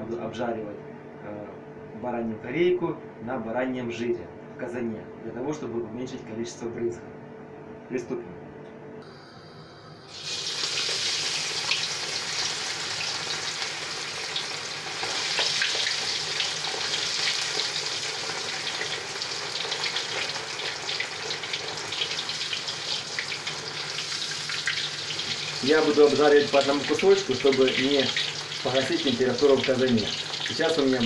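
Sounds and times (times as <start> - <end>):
meat sizzling in fat: 10.1 - 31.0.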